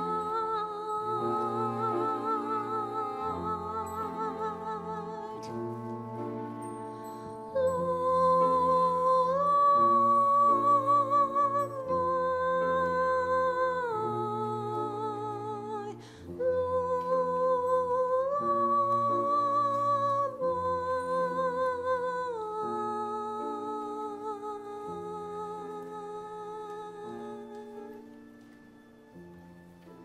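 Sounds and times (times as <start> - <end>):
choir singing: 0.0 - 12.6
small orchestra playing: 0.0 - 30.0.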